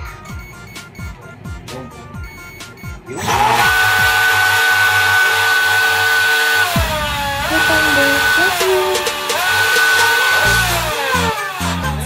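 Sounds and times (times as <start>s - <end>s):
electric motor whine: 3.1s - 12.0s.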